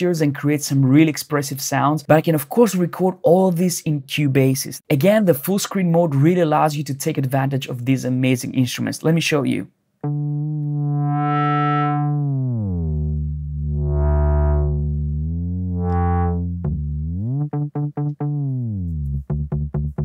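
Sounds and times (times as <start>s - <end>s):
bass synth notes bending in pitch: 10.0s - 20.0s.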